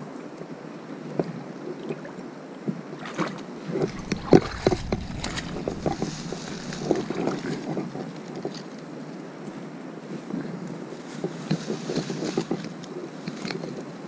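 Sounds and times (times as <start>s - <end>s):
steady low rushing noise: 3.8s - 7.8s
rustling through grass and ferns: 3.9s - 7.7s, 11.0s - 12.6s.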